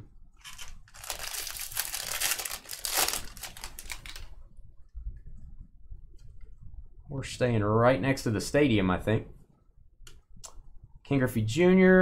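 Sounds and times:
foil wrapper tearing and crackling: 0.4 - 4.3.

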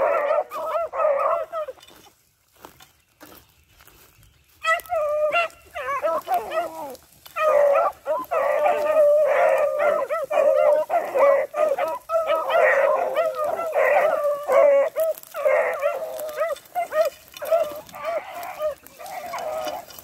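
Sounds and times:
hounds baying: 0.0 - 2.1, 4.5 - 20.0.

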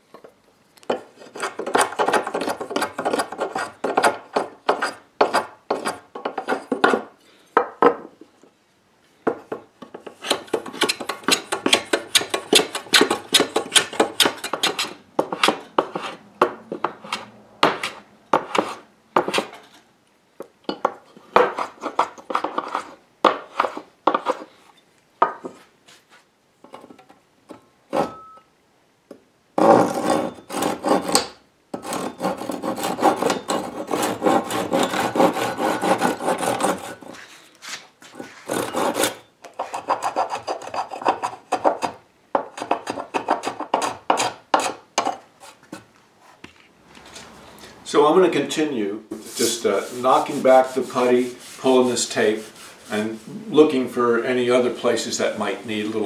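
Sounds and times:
hand plane shaving wood: 31.8 - 42.0, 49.2 - 53.3.

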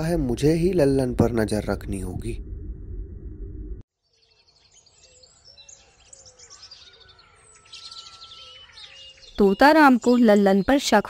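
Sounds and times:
low rumbling drone: 0.0 - 3.8
birds chirping and tweeting: 4.0 - 11.0.

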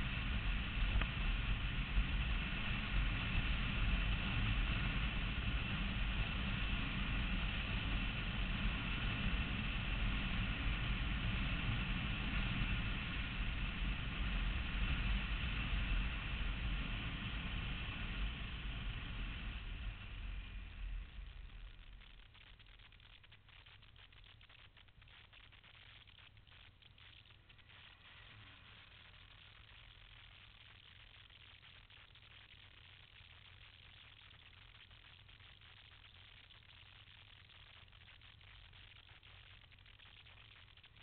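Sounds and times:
wind and road noise: 0.0 - 22.0
motorcycle engine running: 0.0 - 22.5.

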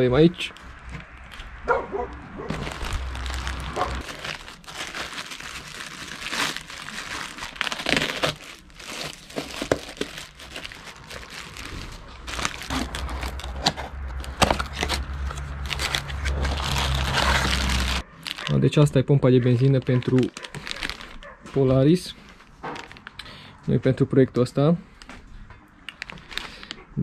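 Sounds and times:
packaging crumpling and tearing: 2.5 - 18.8, 19.6 - 21.2, 22.2 - 23.2, 25.9 - 26.8.

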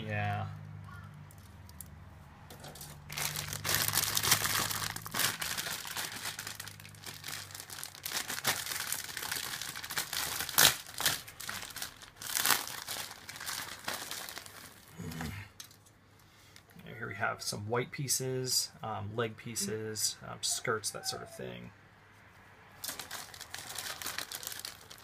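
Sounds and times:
plastic bags crinkling: 2.7 - 15.8, 22.8 - 25.0.

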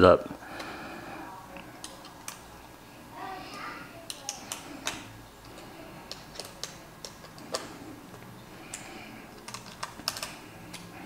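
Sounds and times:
hex key clicking on screws: 6.1 - 7.7, 9.4 - 10.9.

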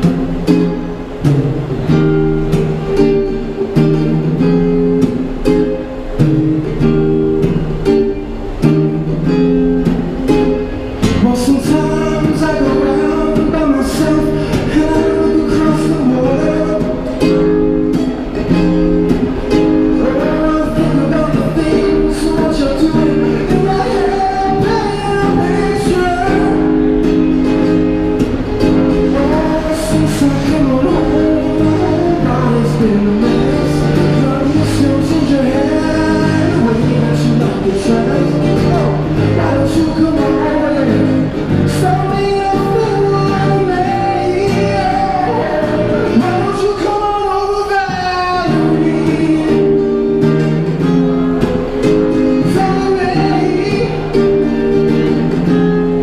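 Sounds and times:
acoustic guitar strumming: 0.0 - 56.0
man singing into a microphone: 11.0 - 17.6, 19.9 - 27.1, 28.8 - 56.0.

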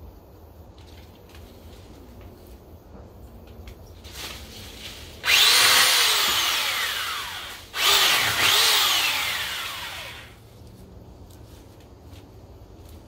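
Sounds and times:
hedge trimmer motor: 5.2 - 10.4.

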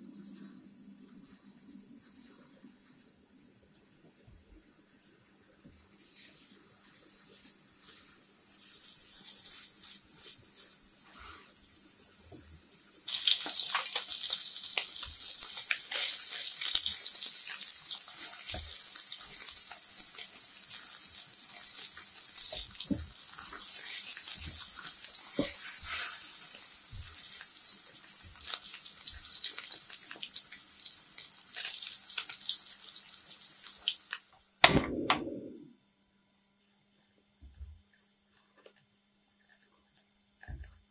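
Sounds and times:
patties sizzling in a frying pan: 6.0 - 34.5.

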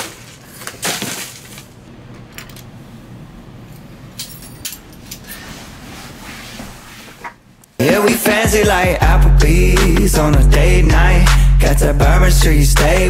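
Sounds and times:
object dropped into trash can: 0.0 - 1.7.

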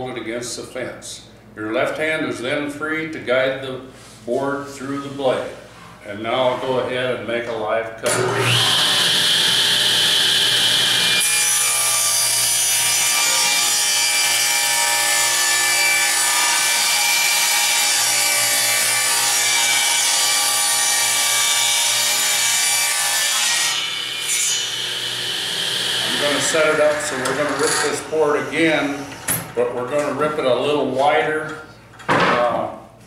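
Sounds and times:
table saw ripping wooden board: 8.1 - 29.5.

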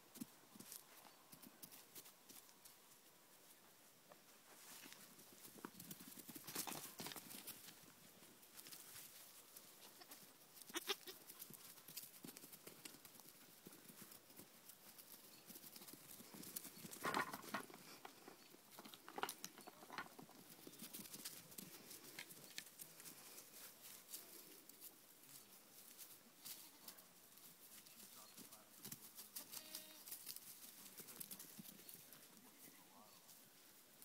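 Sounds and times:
goat kid bleat: 9.8 - 11.2, 29.4 - 30.1.

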